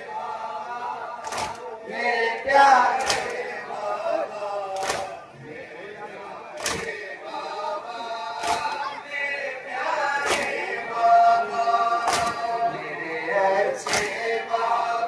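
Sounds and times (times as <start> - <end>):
men chanting together: 0.0 - 15.0
hands striking chests: 12.1 - 12.4.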